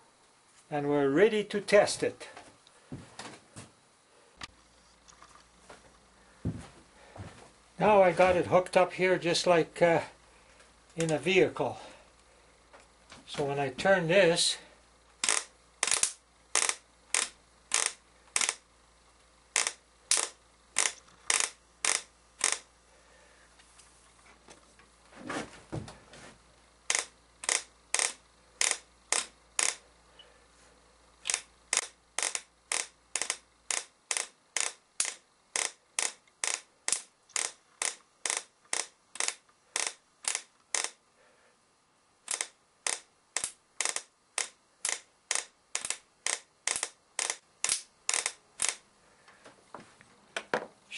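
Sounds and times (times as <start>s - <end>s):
sharp spark snaps: 15.2s - 18.6s, 31.2s - 41.0s, 42.3s - 48.8s.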